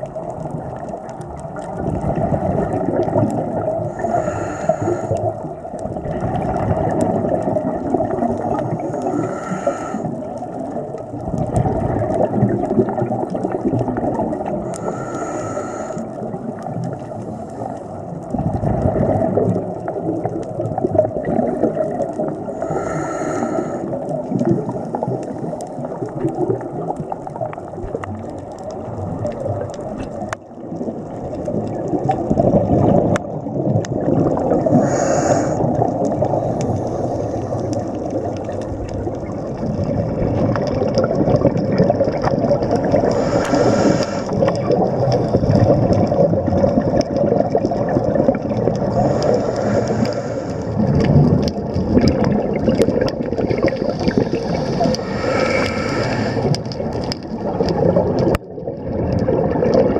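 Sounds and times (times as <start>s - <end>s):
exhaled bubbles: 0.0s - 59.9s
low underwater noise: 0.0s - 59.9s
regulator hissing inhalations: 3.9s - 5.2s, 9.0s - 10.1s, 14.8s - 16.1s, 22.5s - 23.9s, 34.8s - 35.6s, 43.0s - 44.3s, 48.9s - 50.7s, 54.5s - 56.5s.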